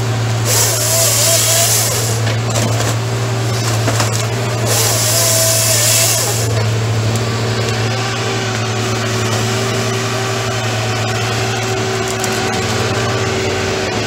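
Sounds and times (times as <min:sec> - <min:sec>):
harvester machine running: 0:00.0 - 0:14.0
saw cutting log hiss: 0:00.4 - 0:02.5, 0:03.4 - 0:06.8.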